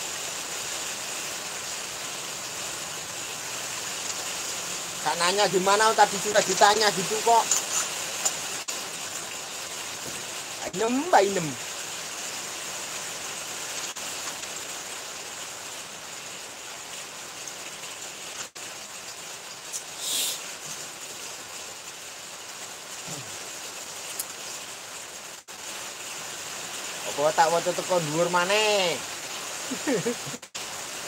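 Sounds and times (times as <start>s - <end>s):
steady rain falling: 0.0s - 31.0s.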